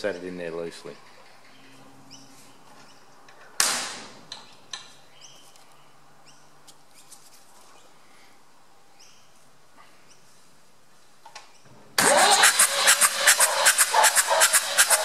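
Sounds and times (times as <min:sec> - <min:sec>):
small birds chirping: 0:00.0 - 0:03.4, 0:04.4 - 0:10.5
sharp crack: 0:03.6 - 0:04.2.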